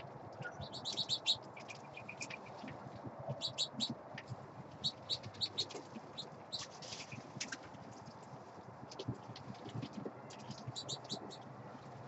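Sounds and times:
small birds chirping: 0:00.3 - 0:07.6, 0:09.9 - 0:11.5.

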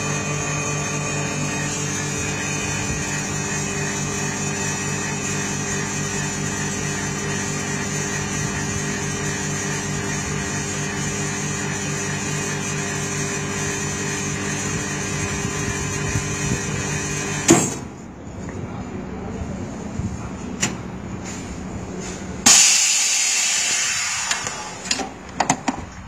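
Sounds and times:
vacuum pump humming: 0:00.0 - 0:17.5.

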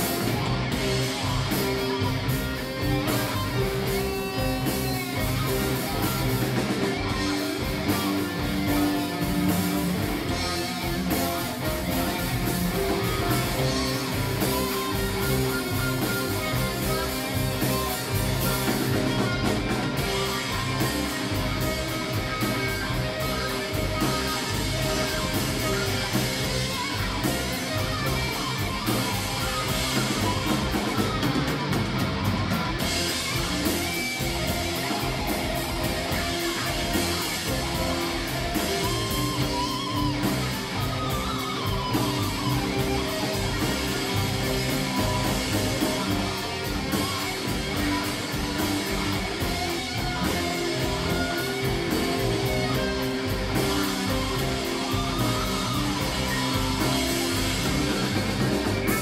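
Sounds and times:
electric guitar: 0:00.0 - 0:59.0
live rock band playing: 0:00.0 - 0:59.0.

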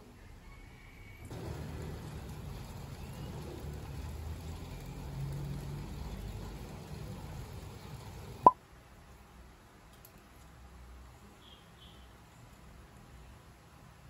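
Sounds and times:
steady rain falling: 0:01.3 - 0:08.5.

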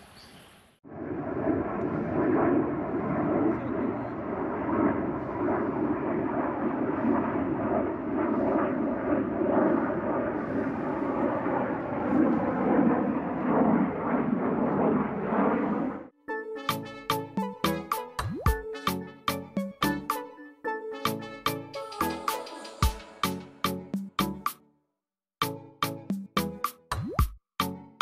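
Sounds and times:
jet fighter afterburner roar: 0:00.9 - 0:16.1.

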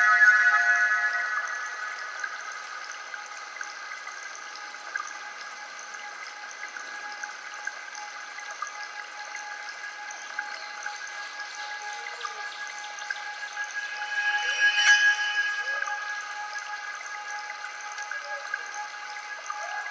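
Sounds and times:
running water hiss: 0:00.0 - 0:19.9
steady ringing tones: 0:13.8 - 0:16.1.

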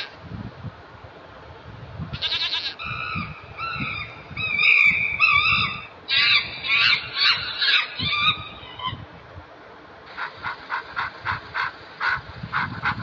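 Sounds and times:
chimpanzee calling and screaming: 0:02.8 - 0:09.0.

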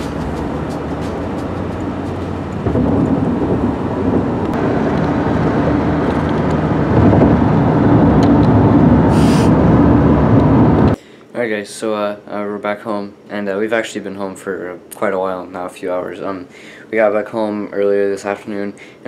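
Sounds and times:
car cabin road and engine rumble: 0:00.0 - 0:11.0.

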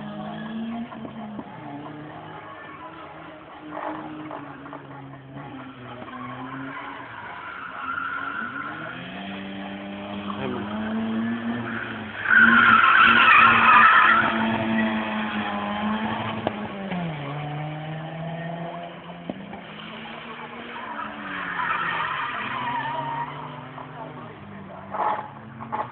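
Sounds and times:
car engine revving: 0:00.0 - 0:25.9
tyres squealing: 0:11.6 - 0:15.3.

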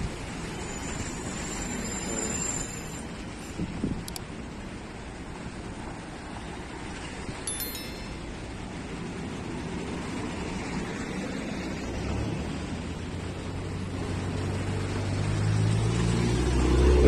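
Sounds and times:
short bright chime: 0:07.5 - 0:08.4.

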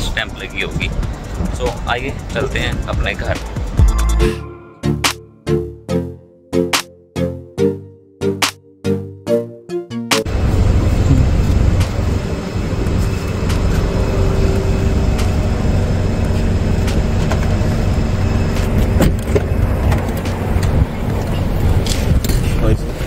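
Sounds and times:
street traffic noise: 0:00.0 - 0:03.9, 0:10.3 - 0:23.0.

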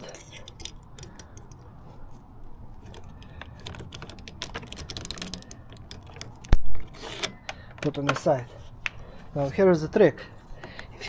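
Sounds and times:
plastic clicks and rattles: 0:02.8 - 0:08.3.

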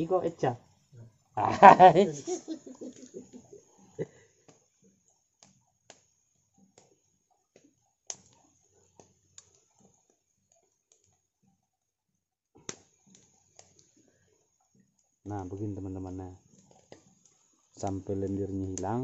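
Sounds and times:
wood fire crackling: 0:00.0 - 0:19.0
sharp fire pops: 0:17.8 - 0:19.0.

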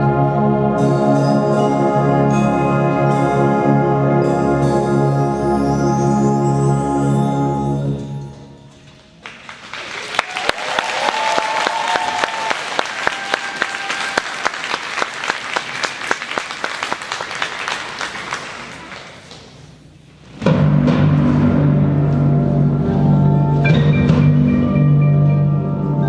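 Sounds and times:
audience applause: 0:09.2 - 0:19.6.

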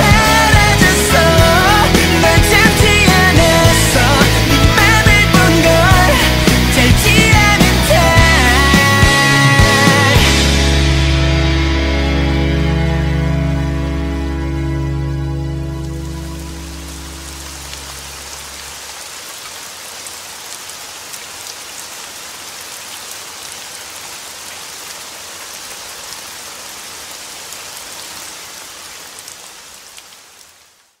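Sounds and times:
steady rain pattering: 0:13.6 - 0:31.0.

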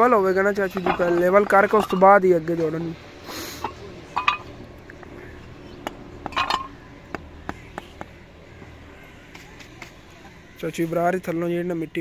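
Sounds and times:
hard objects clinking: 0:00.4 - 0:03.0, 0:03.6 - 0:08.2.

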